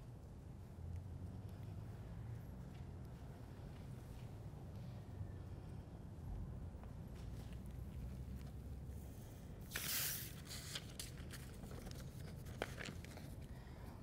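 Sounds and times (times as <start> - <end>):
paper sheet rustling: 9.6 - 13.4.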